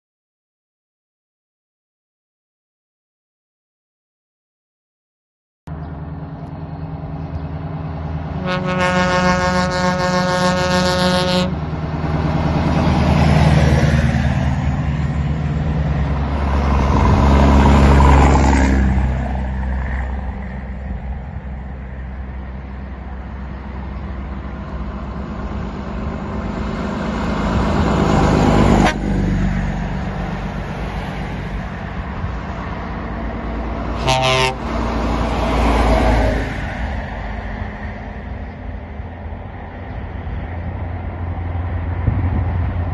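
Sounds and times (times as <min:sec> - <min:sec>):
diesel trucks driving past: 0:05.7 - 0:42.9
truck air horn: 0:08.4 - 0:11.6, 0:28.8 - 0:29.2, 0:33.9 - 0:34.9.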